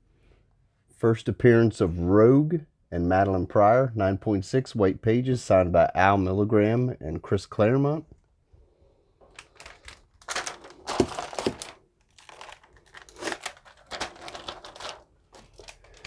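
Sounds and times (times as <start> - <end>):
hard plastic cases rustling and clicking: 9.2 - 16.0.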